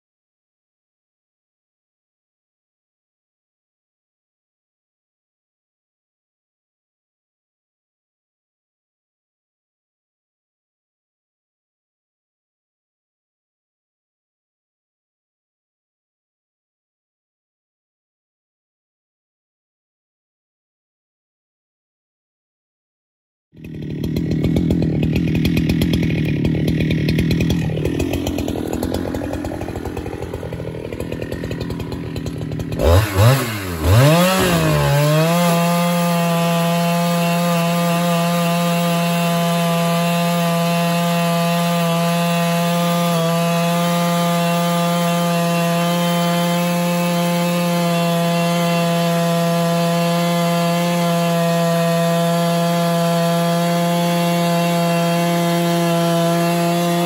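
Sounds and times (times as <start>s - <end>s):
chainsaw cutting log: 23.6s - 57.0s.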